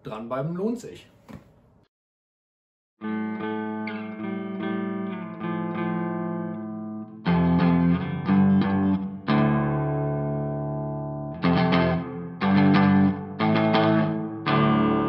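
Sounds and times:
distorted electric guitar chords: 3.0s - 15.0s.

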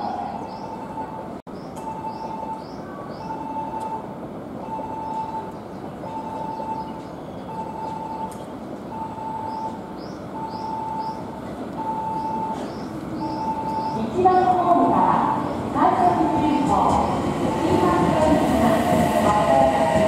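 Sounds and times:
electric train rumbling: 0.0s - 20.0s
electronic warning beep: 0.4s - 11.2s, 11.8s - 14.1s.

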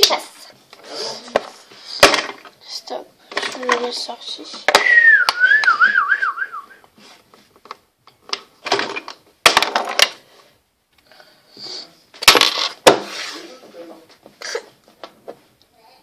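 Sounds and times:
wavering whistle: 4.8s - 6.8s.

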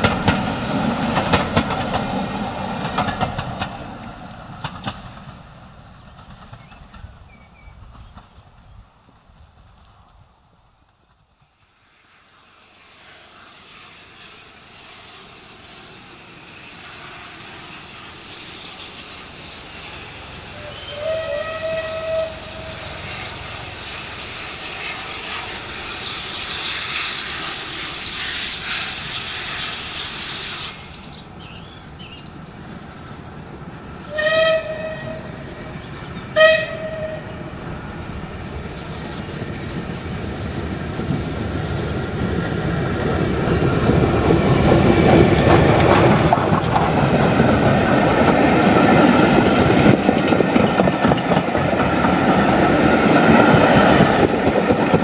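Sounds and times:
steam locomotive running: 0.0s - 55.0s
steam whistle: 20.5s - 23.3s, 34.1s - 35.5s, 36.3s - 37.5s.

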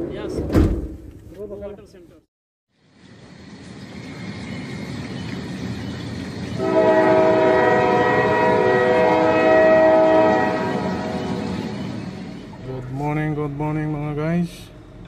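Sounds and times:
background noise: 0.0s - 6.6s
steady horn blast: 6.6s - 11.6s.

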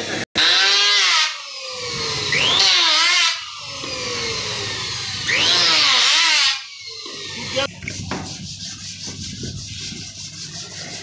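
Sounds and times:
electric hand planer running: 0.0s - 7.7s
planer cutting wood: 0.0s - 7.7s.

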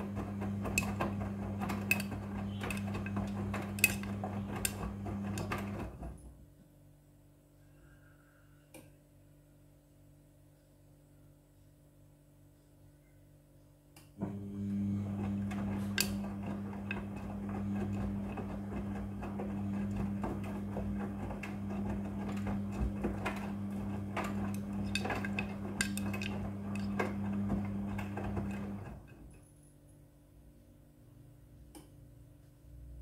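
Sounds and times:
washing machine motor hum: 0.0s - 6.5s, 14.2s - 29.5s.

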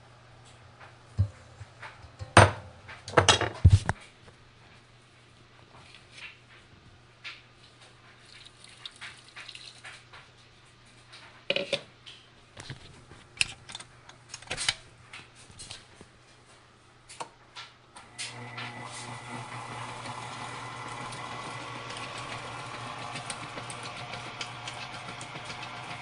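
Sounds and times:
kitchen knocks and clicks: 1.2s - 4.0s, 11.4s - 11.9s
stand mixer motor running: 18.2s - 26.0s.

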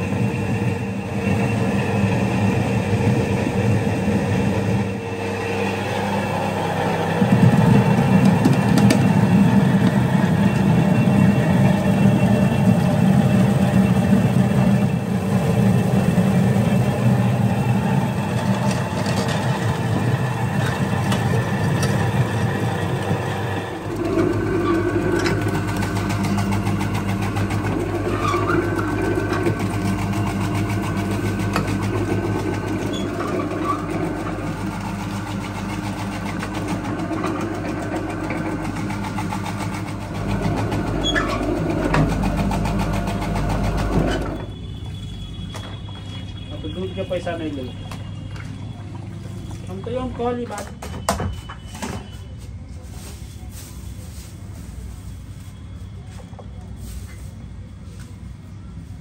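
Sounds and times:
potato shredding machine grating: 0.0s - 44.5s
potato peeling machine running: 0.0s - 52.0s.

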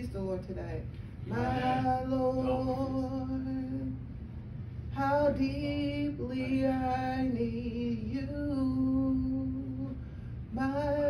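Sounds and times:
steady low hum: 0.0s - 11.0s
woman singing a hymn: 1.3s - 4.0s, 4.9s - 11.0s.

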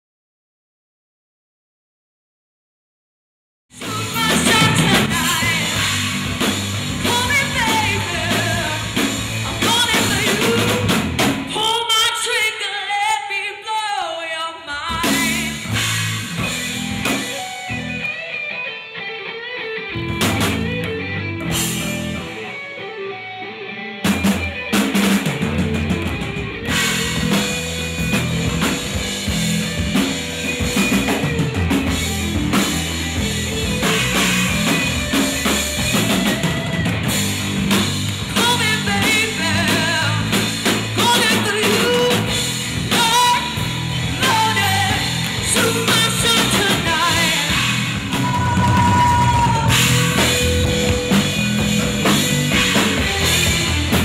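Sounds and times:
electric bass: 3.7s - 11.6s, 15.0s - 18.3s, 19.8s - 54.0s
drum kit: 3.7s - 11.8s, 14.9s - 18.3s, 20.0s - 23.0s, 24.0s - 54.0s
woman singing lead: 3.8s - 6.3s, 6.9s - 15.7s, 38.3s - 51.1s.

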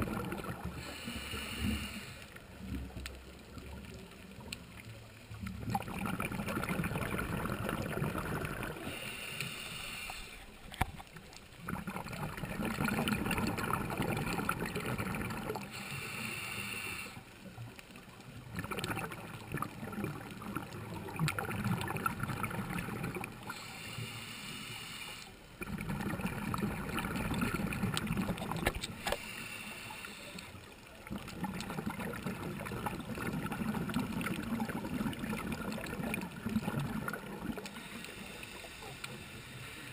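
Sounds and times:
exhaled bubbles gushing underwater: 0.0s - 0.9s, 2.4s - 9.0s, 11.1s - 15.7s, 17.5s - 23.6s, 25.6s - 28.9s, 30.8s - 37.9s
regulator inhalation hiss: 0.8s - 2.4s, 8.8s - 10.6s, 15.7s - 17.3s, 23.5s - 25.4s, 29.0s - 30.6s, 37.7s - 39.9s.

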